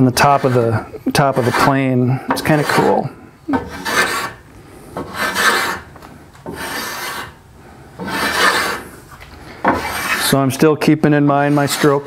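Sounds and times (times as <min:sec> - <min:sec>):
hand plane rasping on wood: 0:00.1 - 0:04.4, 0:05.0 - 0:07.4, 0:08.0 - 0:08.9, 0:09.6 - 0:10.4, 0:11.4 - 0:12.0.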